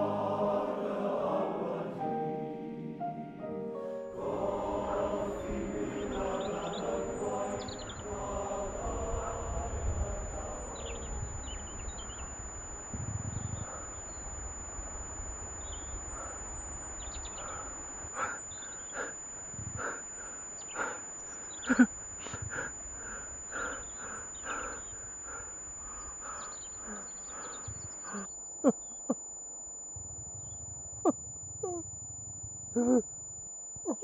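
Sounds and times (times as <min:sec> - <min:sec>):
steady outdoor hiss: 0:00.0 - 0:34.0.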